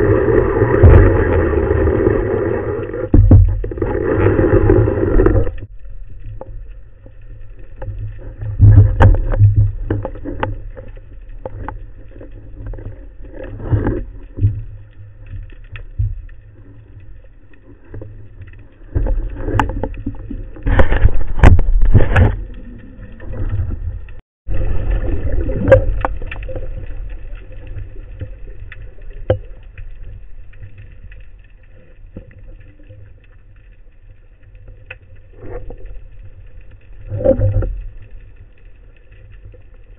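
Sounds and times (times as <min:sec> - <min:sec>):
low water rumble: 0:00.0 - 0:39.9
knocks and splashes: 0:00.6 - 0:01.9, 0:03.0 - 0:06.5, 0:07.7 - 0:11.8, 0:18.9 - 0:27.1.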